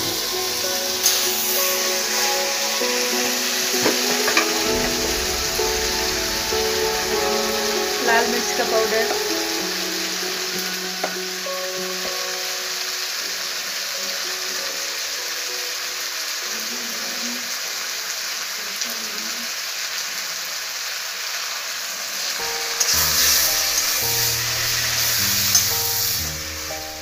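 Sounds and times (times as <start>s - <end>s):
background music: 0.0s - 17.0s, 22.4s - 27.0s
masala sizzling in a pan: 0.0s - 27.0s.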